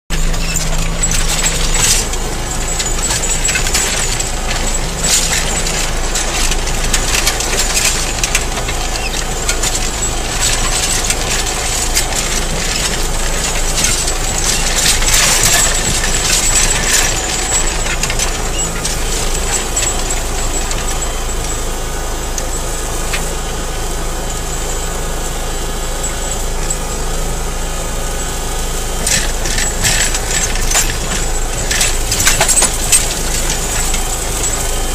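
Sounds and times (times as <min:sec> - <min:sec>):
tractor engine running under load: 0:00.0 - 0:34.9
stones knocking against plough: 0:00.1 - 0:21.2, 0:29.0 - 0:34.9.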